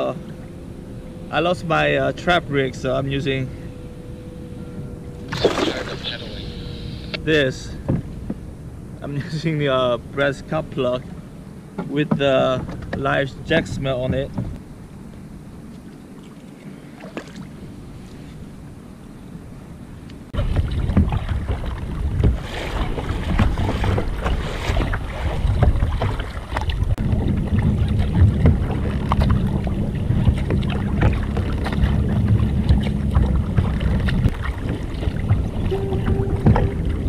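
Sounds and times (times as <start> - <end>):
wind buffeting microphone: 0.0 - 37.0
paddle blades splashing: 5.0 - 7.2, 15.6 - 18.5, 20.4 - 37.0
water slapping hull: 5.1 - 8.4, 15.7 - 17.8, 20.4 - 37.0.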